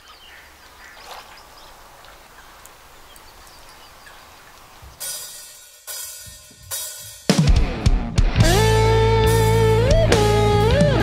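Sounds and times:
birds chirping: 0.0s - 5.4s
band playing with cymbals and bass: 5.0s - 11.0s.

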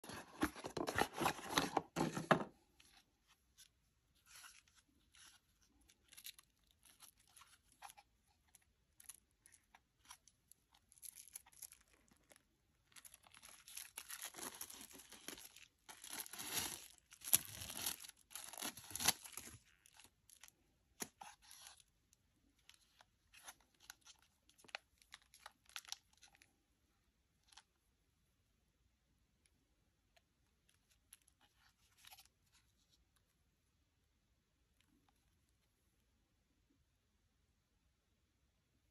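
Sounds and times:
plastic wrapping crinkling: 4.2s - 21.8s
cardboard packaging tearing: 13.0s - 19.6s.

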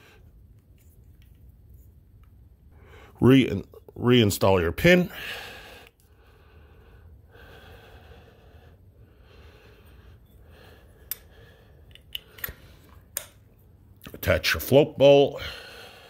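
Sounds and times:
slow steady breathing: 0.0s - 0.9s, 2.6s - 3.2s, 5.0s - 13.8s, 15.3s - 16.0s
light clicks of small parts: 0.5s - 2.4s, 11.0s - 14.2s.

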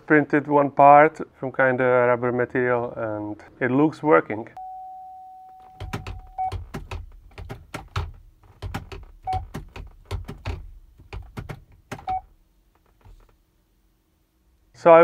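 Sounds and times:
short electronic beeps: 4.6s - 6.5s
gear-shift lever clicking: 5.8s - 12.2s.

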